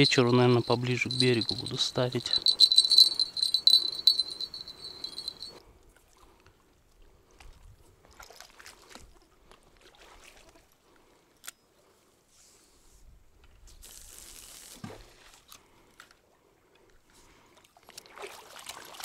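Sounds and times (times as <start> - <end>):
cricket trilling: 0.0 - 5.5.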